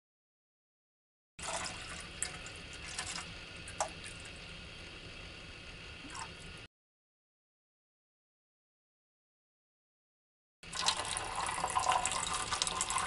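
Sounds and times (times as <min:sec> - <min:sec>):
water trickling into cup: 0:01.4 - 0:04.4, 0:10.7 - 0:13.0.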